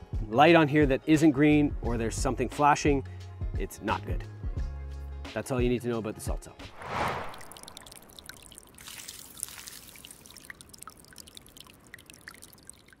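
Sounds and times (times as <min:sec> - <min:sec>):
whoosh: 0:06.7 - 0:08.5
water-like trickle: 0:07.4 - 0:13.0
small drips and ticks: 0:07.8 - 0:13.0.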